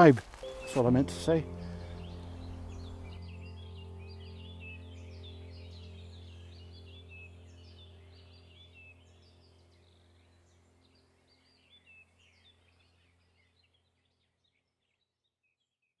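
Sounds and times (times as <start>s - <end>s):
birds chirping: 0.0s - 15.1s
low steady hum: 0.4s - 13.1s.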